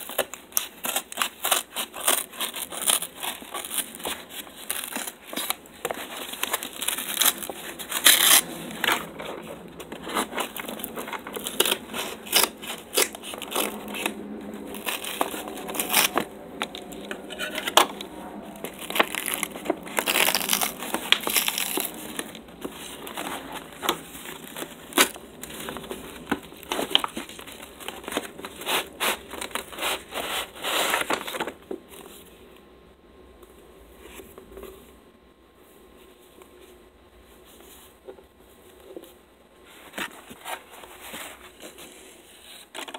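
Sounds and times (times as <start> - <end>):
scissors snipping paper: 0.0 - 30.0
paper tearing and crumpling: 0.0 - 31.6.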